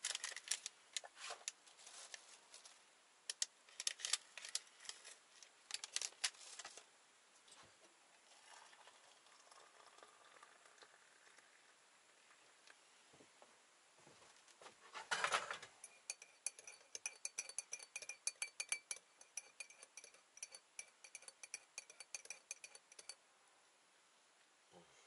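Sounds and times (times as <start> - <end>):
wrapper crinkling and tearing: 0.0 - 0.7, 3.7 - 6.8
faint handling noise: 0.0 - 8.0.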